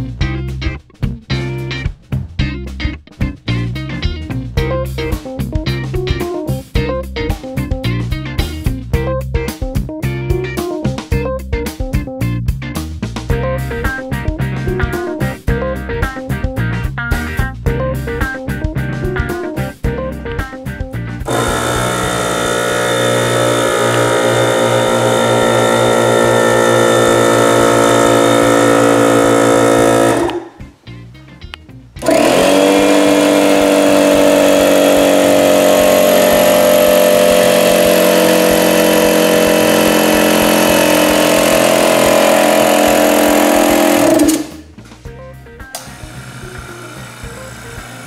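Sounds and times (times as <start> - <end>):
air compressor running: 21.2 - 30.6, 32.0 - 44.8, 45.8 - 48.0.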